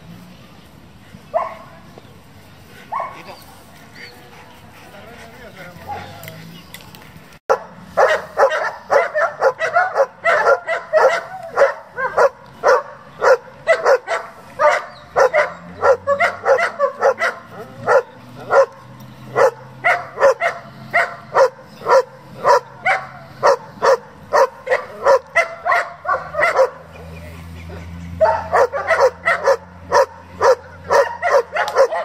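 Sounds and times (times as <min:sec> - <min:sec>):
dog barking: 0:01.4 - 0:01.7, 0:02.9 - 0:03.3, 0:05.8 - 0:06.2, 0:07.5 - 0:26.9, 0:28.2 - 0:32.0.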